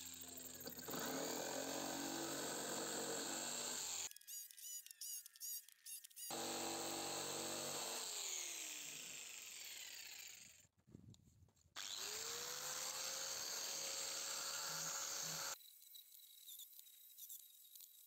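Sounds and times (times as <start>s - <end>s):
jigsaw cutting wood: 0.0s - 4.1s, 6.3s - 10.6s, 11.8s - 15.6s
angle grinder sanding wood: 6.3s - 10.3s, 11.8s - 15.6s.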